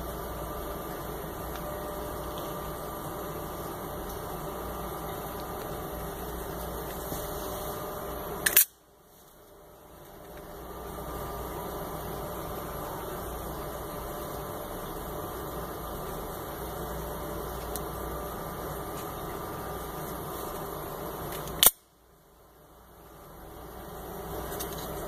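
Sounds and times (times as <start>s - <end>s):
background hiss: 0.0s - 25.0s
knife blade metallic snap: 8.4s - 8.8s, 21.6s - 21.8s.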